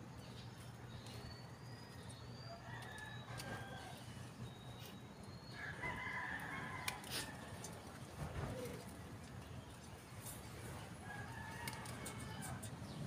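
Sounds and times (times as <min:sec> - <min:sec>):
rooster crowing: 0:02.5 - 0:04.1, 0:05.6 - 0:07.6, 0:11.0 - 0:12.7.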